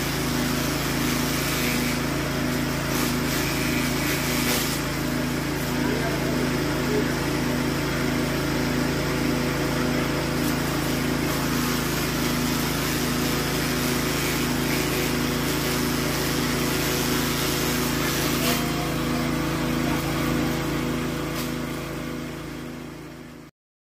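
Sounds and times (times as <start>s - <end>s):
petrol engine running: 0.0s - 23.2s
grass chopped by blades: 0.2s - 6.1s, 10.2s - 20.6s, 21.2s - 21.9s.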